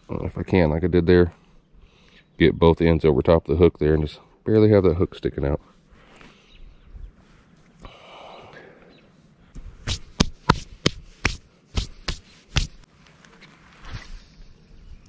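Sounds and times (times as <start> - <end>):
soft rustle: 9.5 - 15.0
hands slapping together: 9.9 - 12.8.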